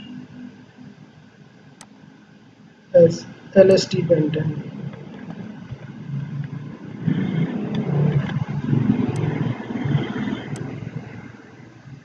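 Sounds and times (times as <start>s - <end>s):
vehicle engine passing by: 6.0s - 11.6s.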